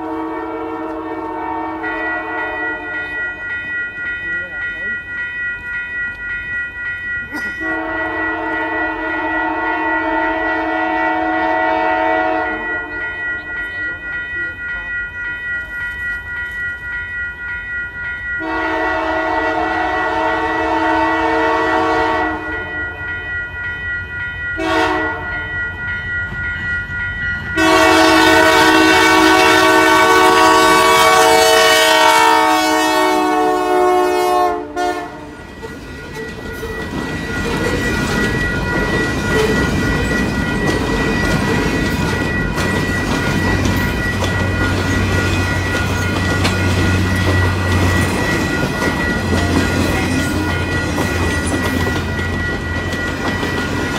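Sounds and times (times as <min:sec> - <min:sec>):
locomotive air horn blasts: 0:00.0 - 0:02.9, 0:07.6 - 0:13.0, 0:18.4 - 0:22.6, 0:24.6 - 0:25.2, 0:27.6 - 0:35.3
crossing bell ringing: 0:00.0 - 0:53.9
train rumbling by: 0:00.0 - 0:53.9.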